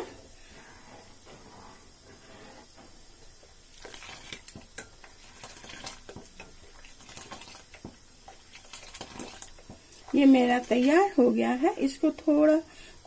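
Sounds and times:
milk pouring: 3.3s - 11.2s.

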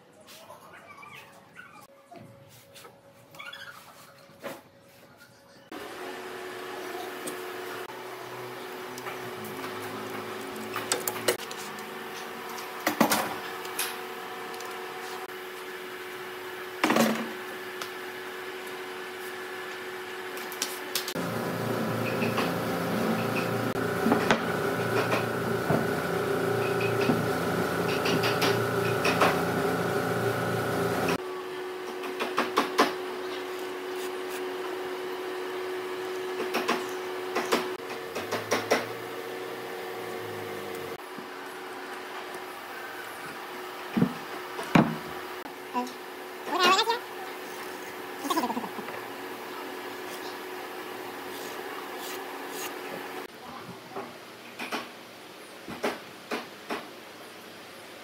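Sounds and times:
machine drone: 21.1s - 31.2s.

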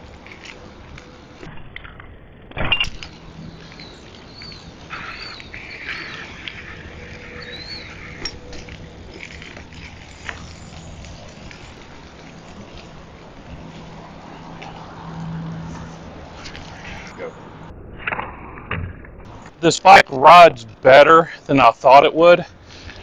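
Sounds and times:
high chirps: 3.4s - 8.5s.

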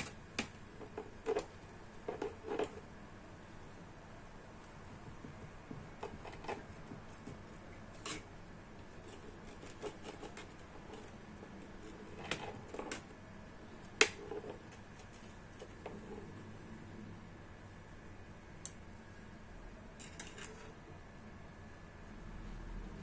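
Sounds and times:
pizza cutter rolling through waffle: 6.0s - 13.2s.

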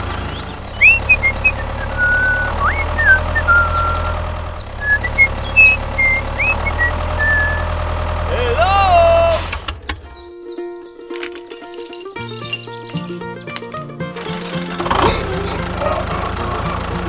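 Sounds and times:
tractor engine droning: 0.0s - 10.2s, 11.0s - 17.0s
high chirping whistles: 0.7s - 4.2s, 4.8s - 7.7s.

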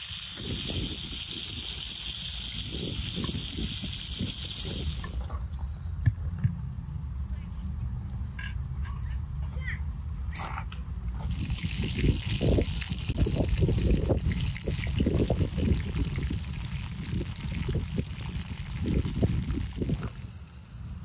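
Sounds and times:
liquid pouring: 11.2s - 20.3s.

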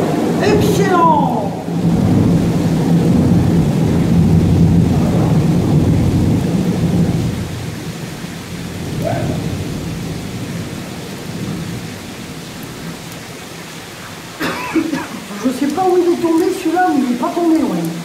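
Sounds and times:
thunder rumbling: 0.0s - 13.1s
heavy rain: 0.0s - 18.0s.

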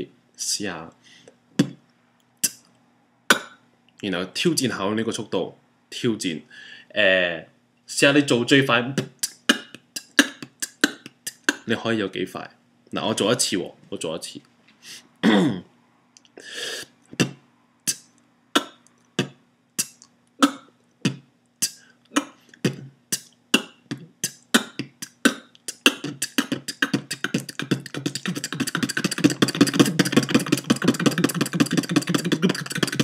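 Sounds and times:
person beatboxing: 1.6s - 1.8s, 2.4s - 2.6s, 3.3s - 3.6s, 8.9s - 11.7s, 16.8s - 33.0s.

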